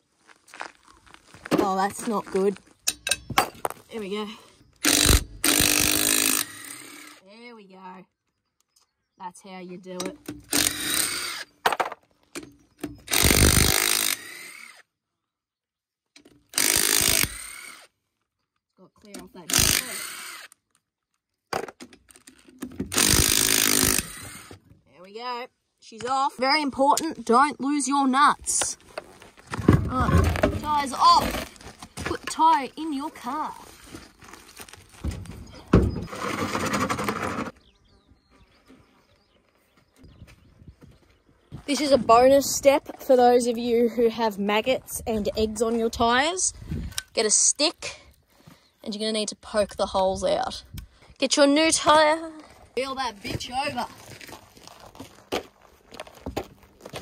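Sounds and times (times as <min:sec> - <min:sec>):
crunchy scraping on gravel: 0:00.0 - 0:05.1, 0:26.3 - 0:46.9, 0:51.8 - 0:57.0
wheel thumping on gravel: 0:28.6 - 0:32.6, 0:33.2 - 0:37.6, 0:53.2 - 0:57.0.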